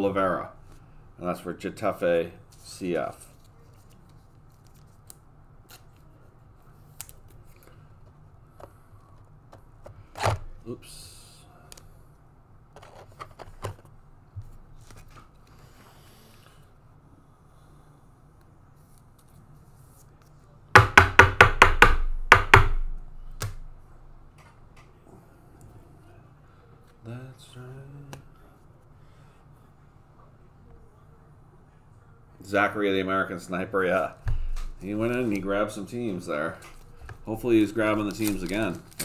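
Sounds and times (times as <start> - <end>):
sharp knocks on wood: 20.8 - 23.6
low steady hum: 21.5 - 39.0.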